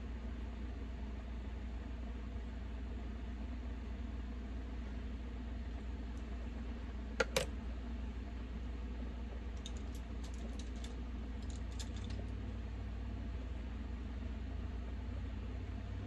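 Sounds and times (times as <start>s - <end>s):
steady low hum: 0.0s - 16.0s
makeup palette clicks and taps: 7.2s - 7.5s.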